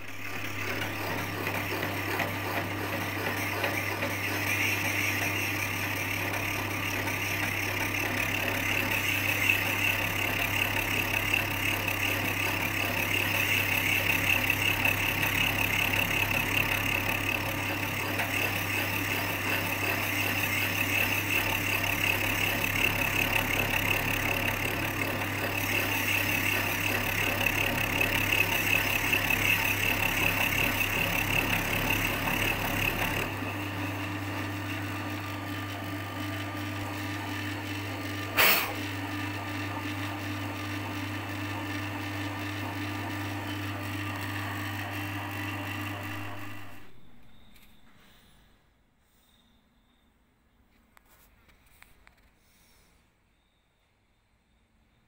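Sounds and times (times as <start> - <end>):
cutter shaving metal: 0.0 - 39.7
small machine motor running: 0.0 - 48.3.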